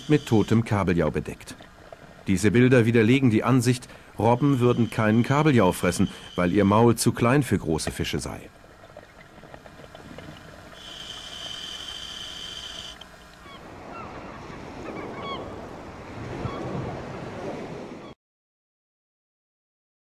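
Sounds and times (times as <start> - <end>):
gulls calling: 0.0 - 16.8
open water noise: 0.0 - 18.2
high-pitched whine: 4.2 - 6.9, 10.8 - 13.0.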